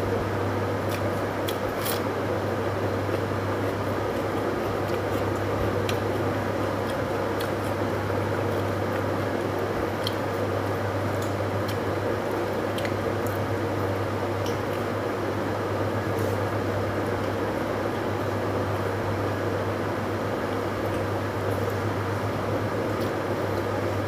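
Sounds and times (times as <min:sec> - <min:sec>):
electrical hum: 0:00.0 - 0:24.0
chewing and tearing bread: 0:00.8 - 0:14.8.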